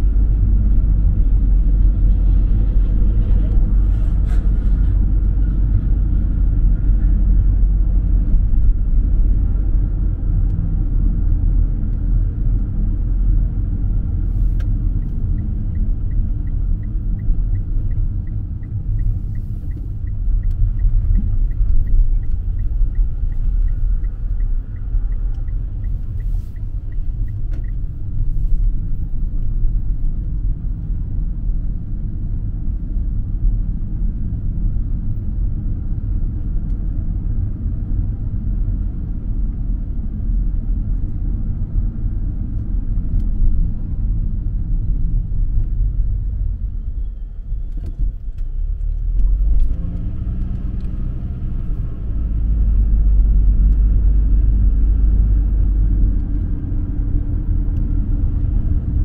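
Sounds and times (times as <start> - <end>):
car engine and tyres rumbling: 0.0 - 59.0
turn signal ticking: 14.6 - 30.9, 52.6 - 59.0.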